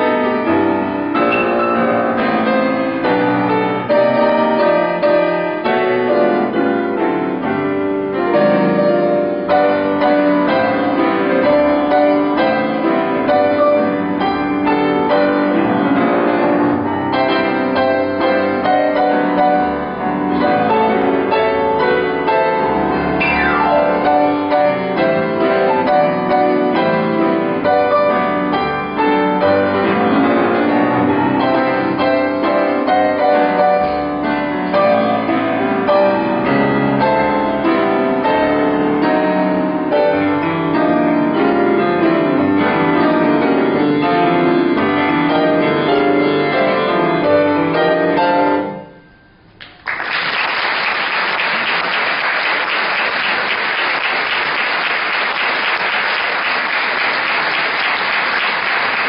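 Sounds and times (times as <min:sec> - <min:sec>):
solo grand piano playing: 0:00.0 - 0:49.9
audience applause: 0:49.6 - 0:59.0.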